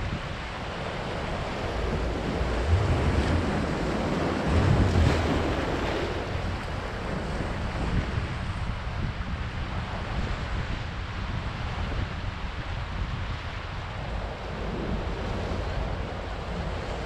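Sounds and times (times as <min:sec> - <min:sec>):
wind buffeting microphone: 0:00.0 - 0:17.0
ocean surf breaking over rocks: 0:00.2 - 0:08.3, 0:14.0 - 0:17.0.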